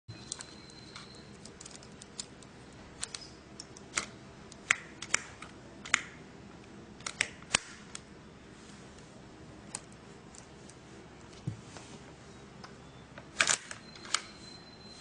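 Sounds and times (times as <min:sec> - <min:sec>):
metallic clicks and snaps: 0:00.2 - 0:06.2, 0:07.0 - 0:08.1.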